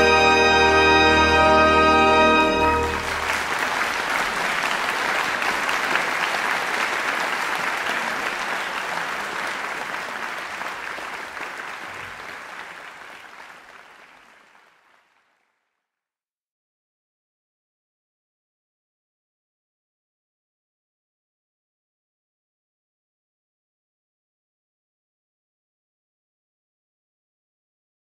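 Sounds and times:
audience applauding: 2.0 - 15.7.

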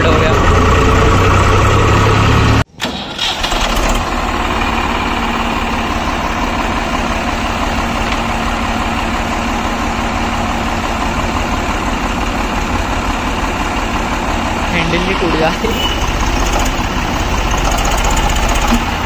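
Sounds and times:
engine idling: 0.0 - 19.0
tractor diesel engine running: 0.0 - 19.0
engine starting unevenly: 0.1 - 8.9, 16.2 - 19.0.

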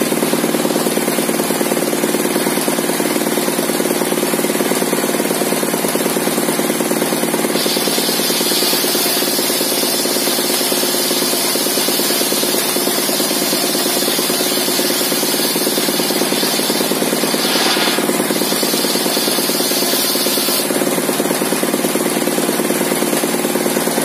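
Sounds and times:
circular saw cutting timber: 7.5 - 20.9
stationary engine beating: 12.3 - 21.0.

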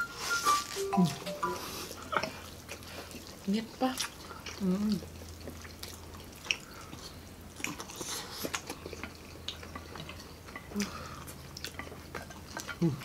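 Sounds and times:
wet chewing: 0.3 - 13.0
person humming: 0.8 - 1.9.

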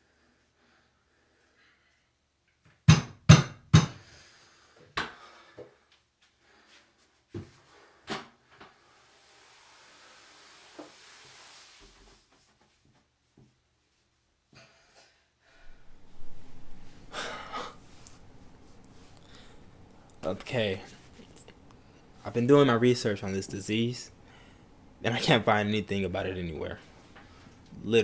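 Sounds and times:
soft hiss: 8.5 - 12.9.

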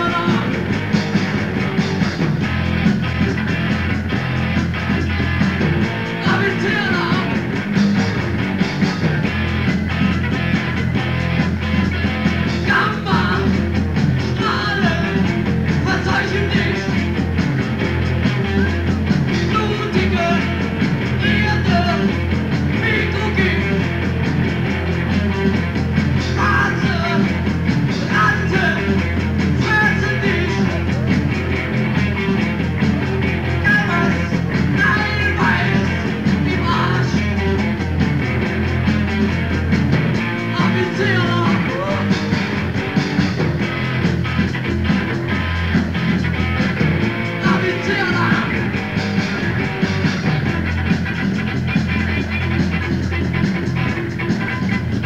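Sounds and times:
person singing: 0.0 - 0.7, 6.2 - 7.4, 12.6 - 13.6, 14.3 - 17.0, 19.3 - 22.2, 22.8 - 23.9, 26.4 - 27.4, 28.0 - 31.1, 33.6 - 37.6, 40.4 - 42.3, 47.4 - 48.8
generator hum: 0.0 - 55.0
live rock band playing: 0.0 - 55.0.

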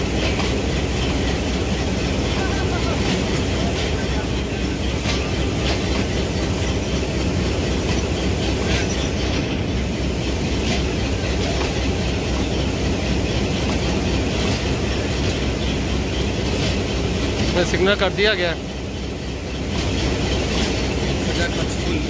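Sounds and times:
train wheels rumbling on rails: 0.0 - 22.0
wheels clicking over rail joints: 0.0 - 22.0.

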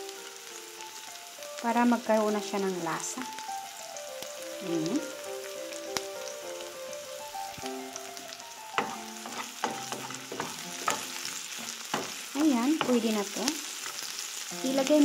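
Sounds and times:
onions sizzling in oil: 0.0 - 15.0
wooden spoon scraping pan: 8.8 - 13.1.

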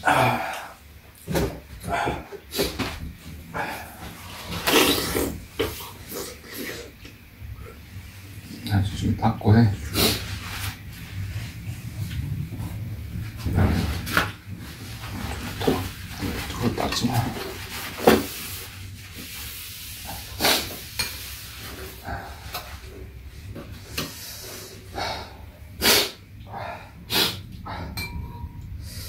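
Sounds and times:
slurping: 4.3 - 7.1
spoons clinking against bowls: 28.0 - 28.5.

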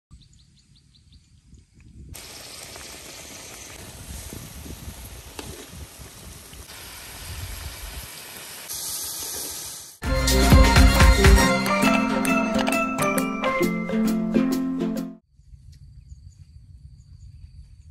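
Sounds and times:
fish sizzling in oil: 2.2 - 10.0
loud music: 10.0 - 15.2.

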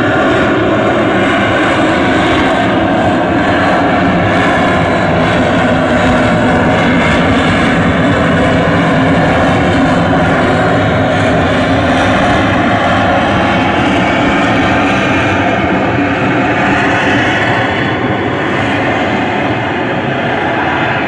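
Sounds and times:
jet engine roaring with whine: 0.0 - 21.0.

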